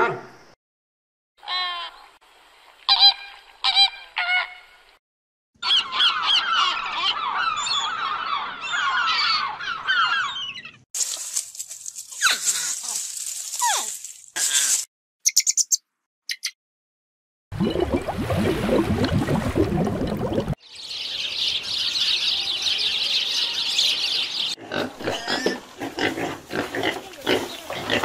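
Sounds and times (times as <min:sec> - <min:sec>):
flamingo honking calls: 0:02.9 - 0:04.8
chorus of birds calling: 0:05.6 - 0:10.8, 0:20.6 - 0:25.3, 0:27.2 - 0:28.0.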